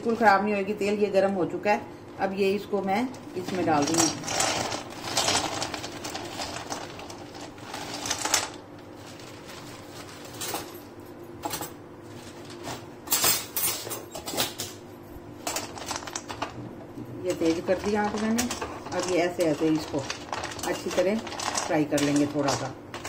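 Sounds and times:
dried roots clattering in a pan: 3.4s - 10.3s, 15.5s - 16.6s, 17.2s - 23.0s
roots knocking and rattling: 3.7s - 9.6s, 17.9s - 22.2s.

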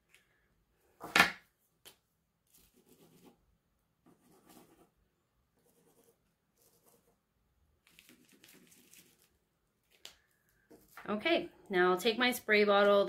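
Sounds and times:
plastic crinkling: 7.8s - 11.0s.

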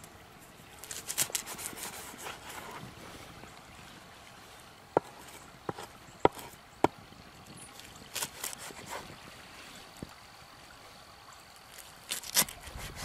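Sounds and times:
crackly rustling of onion stalks: 0.8s - 3.4s, 11.6s - 13.0s.

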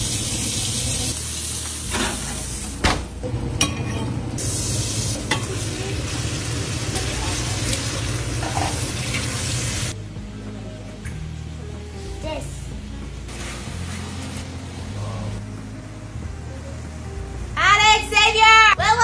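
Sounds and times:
chicken sizzling in a skillet: 0.0s - 2.8s, 4.4s - 10.0s.

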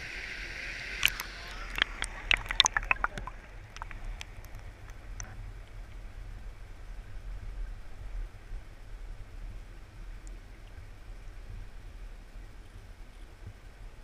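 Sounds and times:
muffled underwater water flow: 0.0s - 14.0s
sharp clicks and splashes: 1.0s - 6.0s.

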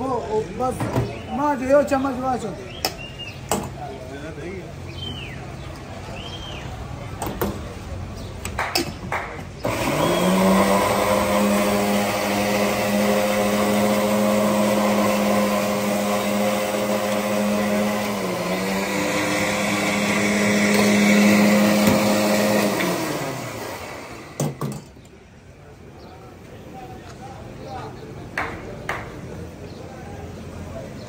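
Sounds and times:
blender motor humming: 9.6s - 24.6s.

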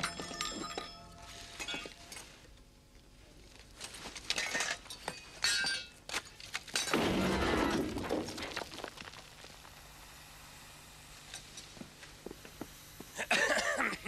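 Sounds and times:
metal trinkets clinking: 0.0s - 2.3s
loud crash: 6.9s - 8.8s.

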